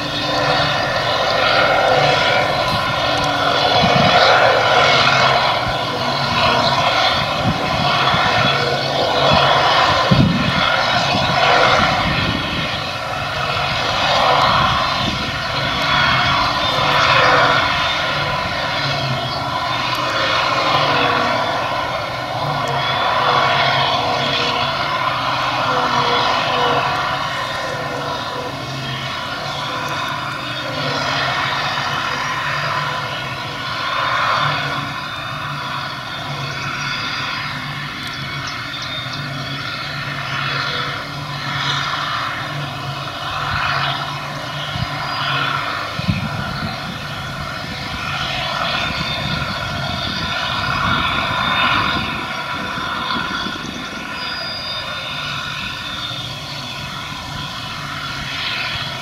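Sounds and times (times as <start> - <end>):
forage harvester engine drone: 0.0 - 59.0
tractor engine: 0.0 - 59.0.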